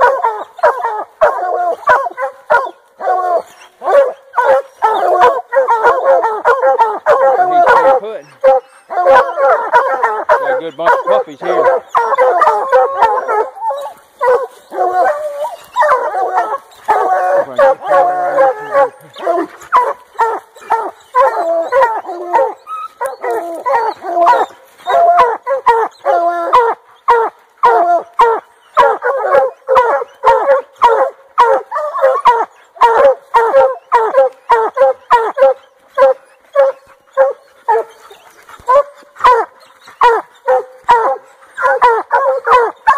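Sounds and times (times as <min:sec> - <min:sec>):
dogs barking: 0:00.0 - 0:42.9
dogs bawling: 0:00.0 - 0:42.9.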